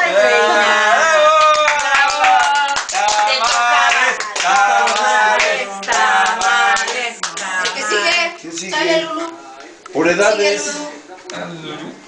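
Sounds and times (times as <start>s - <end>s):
people clapping: 0.0s - 8.3s
group of people singing: 0.0s - 9.4s.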